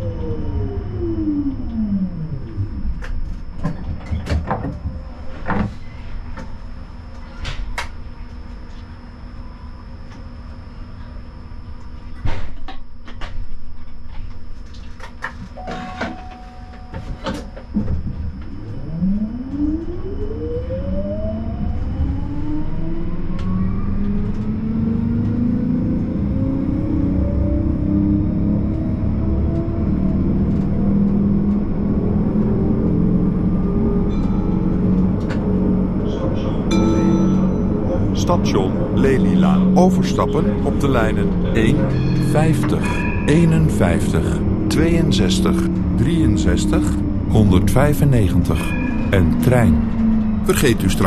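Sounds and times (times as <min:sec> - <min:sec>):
tram traction drive whining: 0:00.0 - 0:51.0
short steady beep: 0:15.6 - 0:17.4.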